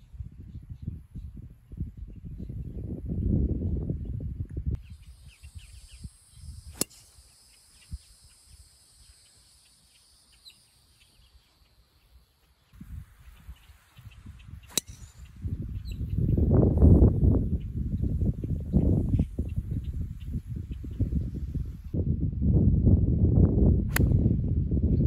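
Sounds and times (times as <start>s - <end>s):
golf club striking ball: 6.7s - 7.2s, 14.7s - 15.3s.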